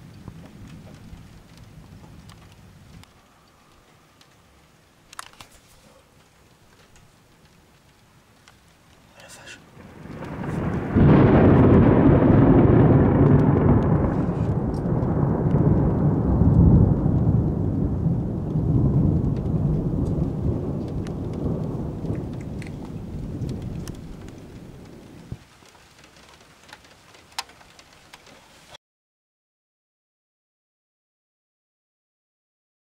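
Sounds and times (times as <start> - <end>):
thunder rumble: 0.0 - 7.6, 8.4 - 25.5
rain falling: 0.0 - 28.8.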